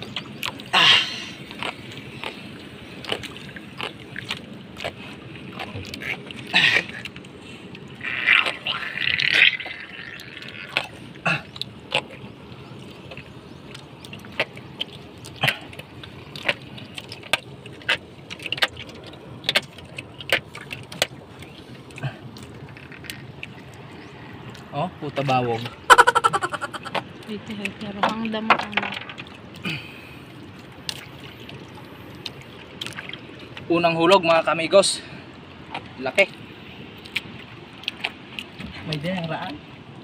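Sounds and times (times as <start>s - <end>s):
clicks and knocks in boat: 26.9s - 29.6s.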